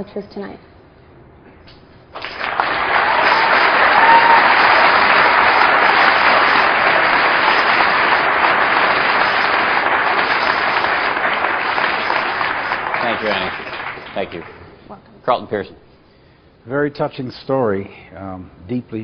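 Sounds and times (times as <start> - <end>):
large audience applauding: 2.2 - 14.6.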